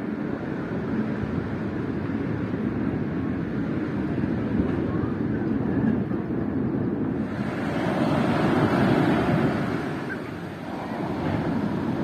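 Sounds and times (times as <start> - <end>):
sea surf rushing: 7.1 - 12.0.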